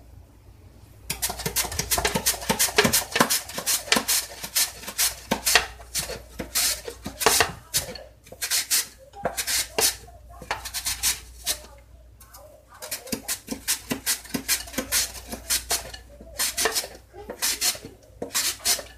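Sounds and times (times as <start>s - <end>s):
carrot slicing strokes: 1.1s - 11.7s, 12.8s - 18.9s.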